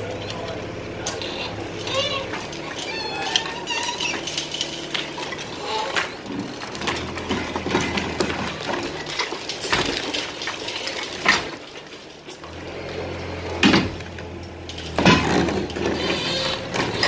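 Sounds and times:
excavator engine running: 0:00.0 - 0:17.0
rubble clattering and crashing: 0:00.0 - 0:17.0.

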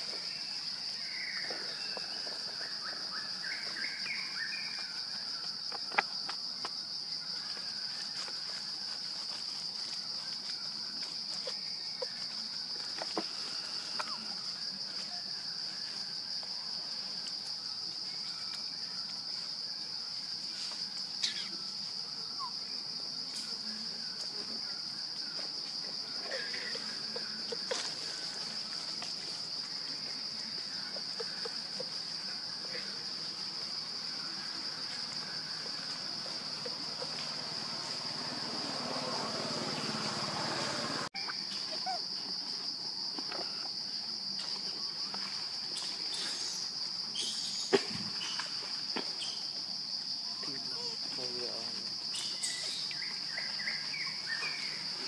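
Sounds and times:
insects droning: 0:00.0 - 0:55.0
faint chirps: 0:09.8 - 0:33.4, 0:45.0 - 0:49.6, 0:50.2 - 0:55.0.

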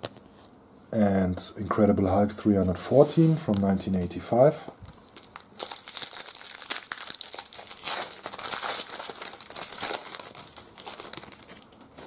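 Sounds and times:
foil wrapper tearing and crinkling: 0:04.8 - 0:12.0.

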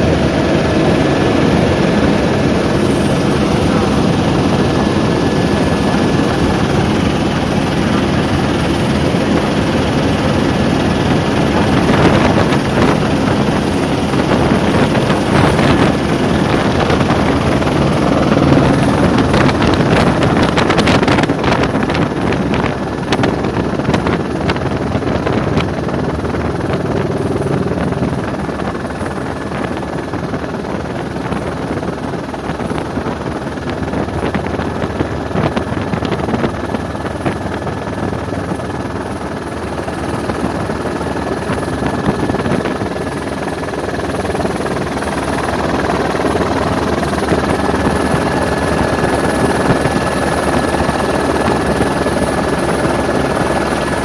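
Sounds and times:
helicopter engine and rotor: 0:00.0 - 0:54.0
rough crackling noise: 0:11.7 - 0:37.9.

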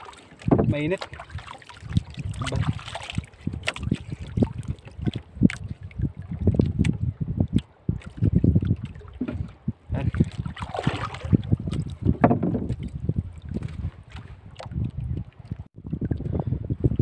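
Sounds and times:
water lapping against wooden boat: 0:00.0 - 0:17.0
wind buffeting microphone: 0:00.0 - 0:17.0
boat knocks: 0:00.4 - 0:01.2, 0:09.2 - 0:09.5, 0:12.0 - 0:12.8.

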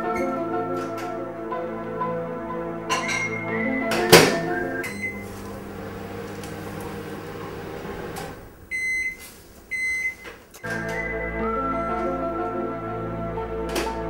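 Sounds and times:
microwave oven humming: 0:04.2 - 0:10.6.

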